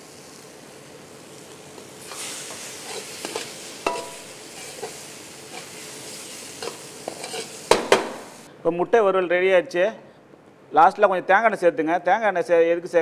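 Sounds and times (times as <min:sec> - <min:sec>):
frying sizzle: 0:00.0 - 0:08.5
ladle scraping iron pan: 0:02.0 - 0:05.8, 0:06.6 - 0:08.3.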